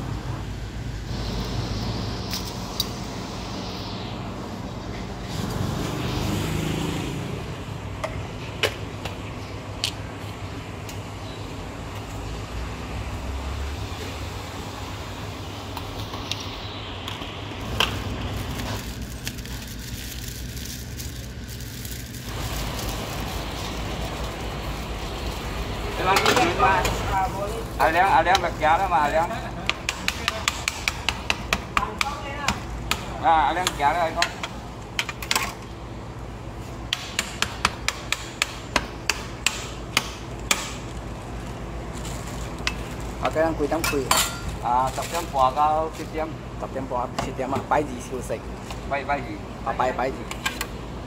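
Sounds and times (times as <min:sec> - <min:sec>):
plastic bag crinkling: 0:17.6 - 0:25.9, 0:40.8 - 0:43.2.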